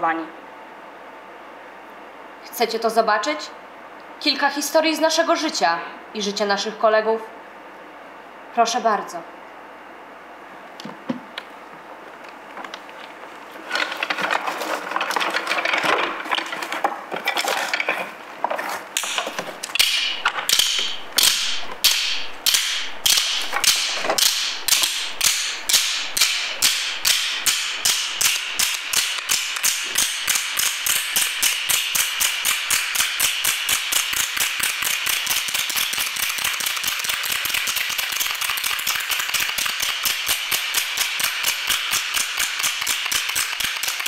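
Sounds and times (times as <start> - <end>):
dense clatter: 13.6 - 18.6.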